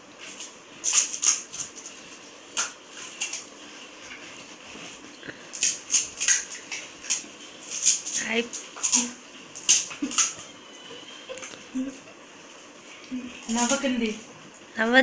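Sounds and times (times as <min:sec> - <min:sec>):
crisp shells cracking and crunching: 0:00.2 - 0:04.5, 0:05.2 - 0:10.4.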